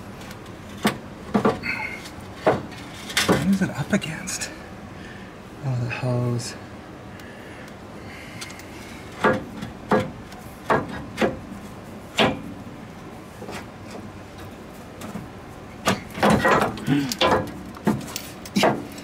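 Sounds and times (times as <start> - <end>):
metal clunks and knocks: 0.7 - 1.7, 9.1 - 11.4, 12.1 - 12.5, 15.8 - 19.0.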